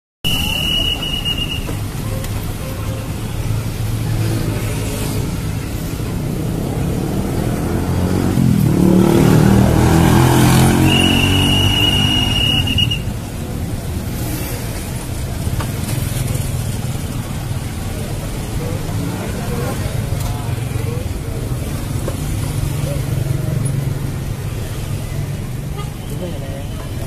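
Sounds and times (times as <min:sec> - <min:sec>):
vehicle passing: 0:03.7 - 0:12.9.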